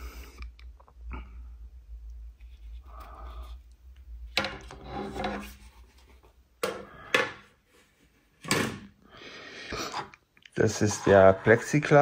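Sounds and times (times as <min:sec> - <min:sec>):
parts scraping on tabletop: 0:04.4 - 0:05.8, 0:09.7 - 0:12.0.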